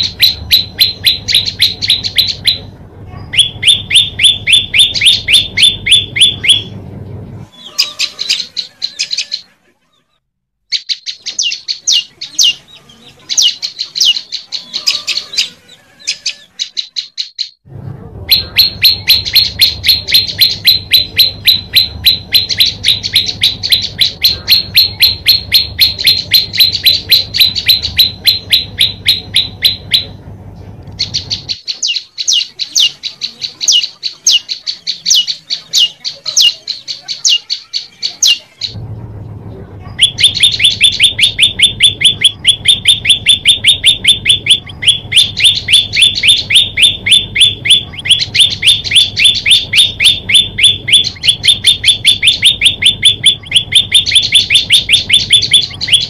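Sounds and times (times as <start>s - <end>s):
bird chip notes: 0.0s - 6.8s, 18.3s - 38.8s, 40.0s - 56.0s
low hum: 0.0s - 9.7s, 17.6s - 37.1s, 37.9s - 56.0s.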